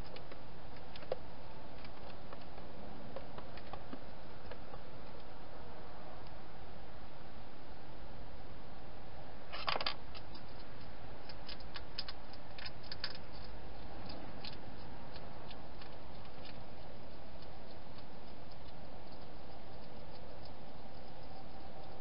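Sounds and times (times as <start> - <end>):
hedgehog crunching dry food: 9.6 - 22.0.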